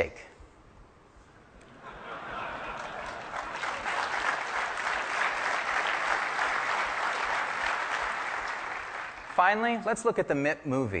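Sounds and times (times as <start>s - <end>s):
large audience applauding: 1.9s - 9.6s.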